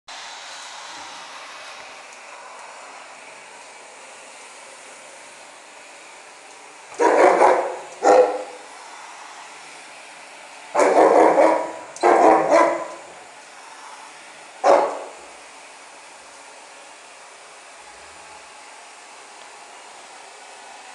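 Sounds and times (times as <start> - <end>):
vacuum cleaner suction hiss: 0.1 - 20.9
dog barking: 7.0 - 8.6, 10.8 - 13.0, 14.6 - 15.2.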